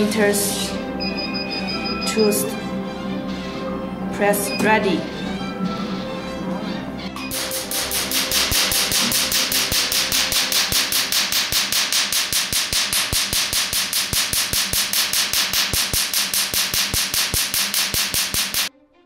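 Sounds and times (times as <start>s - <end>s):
laser pulses snapping: 7.3s - 18.7s.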